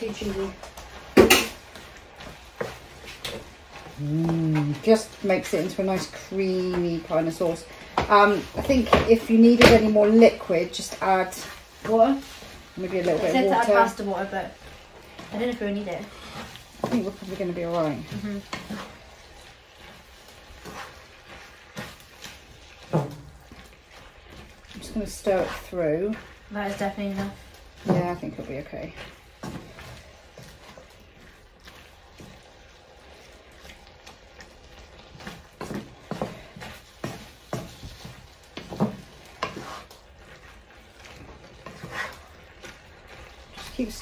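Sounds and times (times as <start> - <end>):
spatula scraping and knocking pan: 0.0 - 44.0
wooden spatula stirring in a pan: 0.0 - 44.0.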